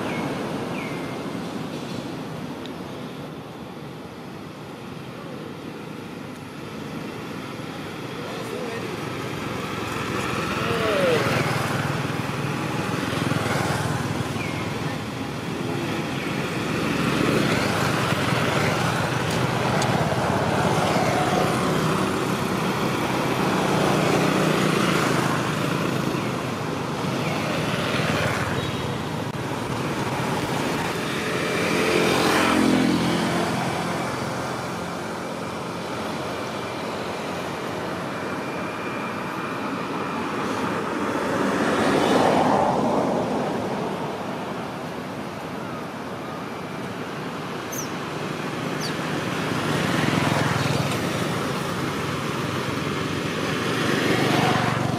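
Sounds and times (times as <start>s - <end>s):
road traffic passing: 0.0s - 54.9s.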